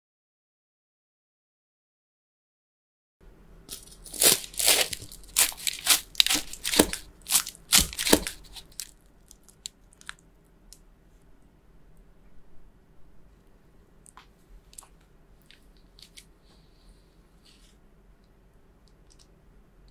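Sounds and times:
knife crunching through bread crust: 3.7 - 10.2.

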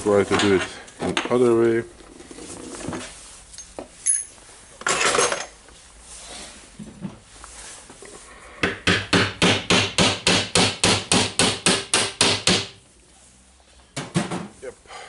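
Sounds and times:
hammer tapping on metal: 8.6 - 12.8.

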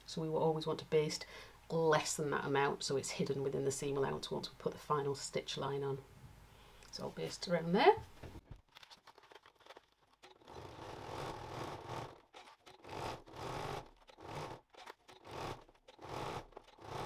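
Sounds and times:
sewing machine stitching: 9.7 - 17.0.

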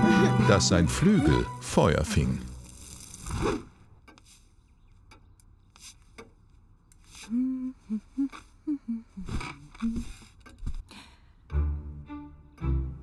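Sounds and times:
person humming: 7.2 - 10.2.

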